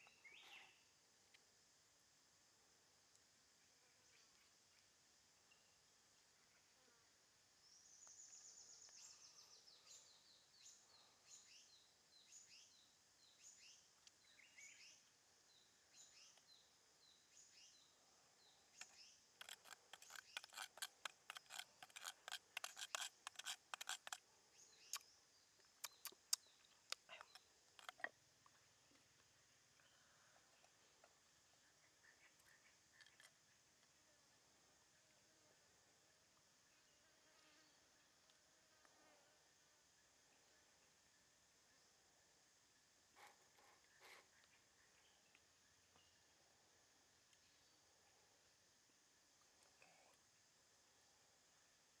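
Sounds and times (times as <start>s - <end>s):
bird singing: 0.0s - 0.9s, 7.6s - 28.1s, 29.8s - 33.6s, 43.6s - 46.3s
knife scraping stone mortar: 19.4s - 24.2s.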